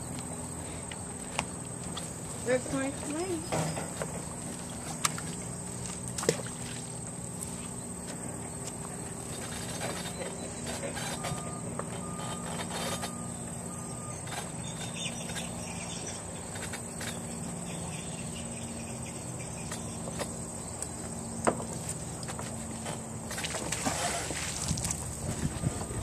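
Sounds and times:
distant engine drone: 0:00.0 - 0:26.0
vehicle reversing beeper: 0:09.6 - 0:15.6, 0:25.3 - 0:26.0.

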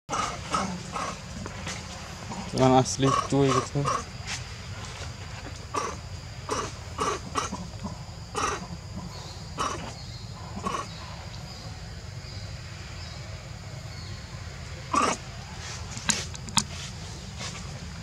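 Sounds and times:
short harsh animal calls: 0:05.7 - 0:07.7, 0:08.3 - 0:08.8, 0:09.6 - 0:11.0.

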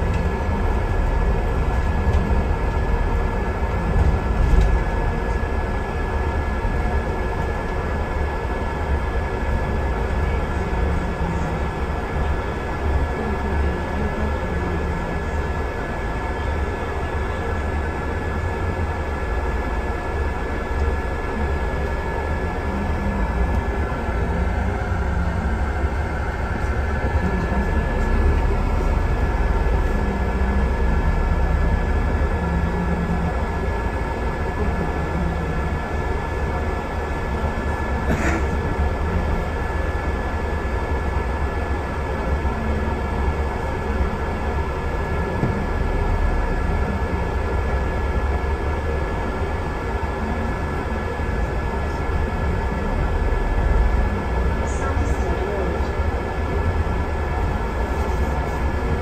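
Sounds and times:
bus engine and road rumble: 0:00.0 - 0:59.0.

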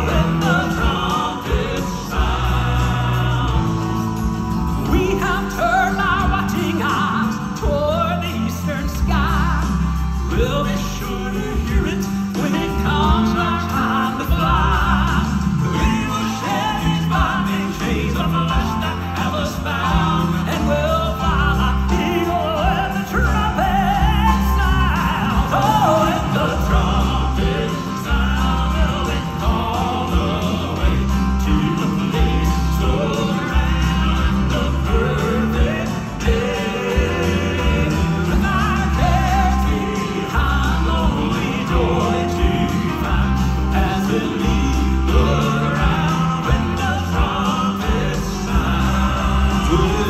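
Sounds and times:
band accompaniment: 0:00.0 - 0:50.0
male vocal quartet singing: 0:00.0 - 0:50.0
steady low bass line: 0:00.0 - 0:50.0.

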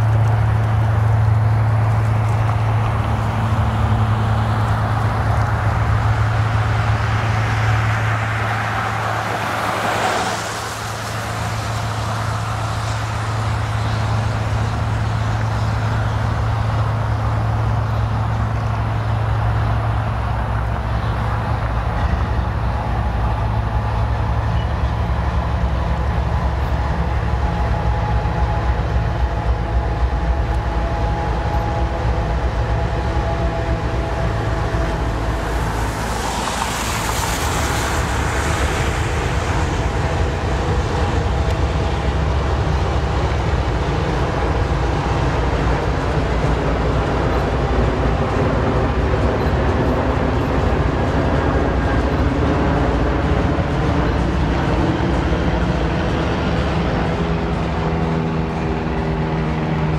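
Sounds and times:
diesel locomotive engine drone: 0:00.0 - 0:59.9.

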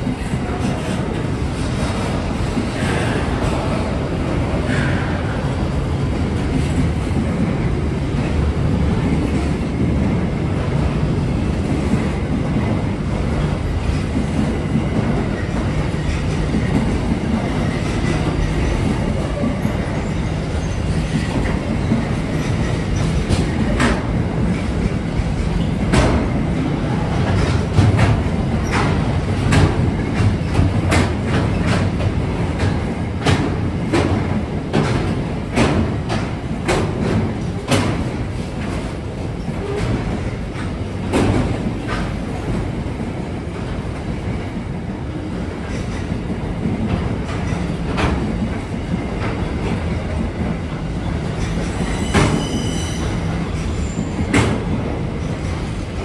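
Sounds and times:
steel wheels rumbling on rail: 0:00.0 - 0:56.0
wheels clacking over rail joints: 0:11.7 - 0:42.7.

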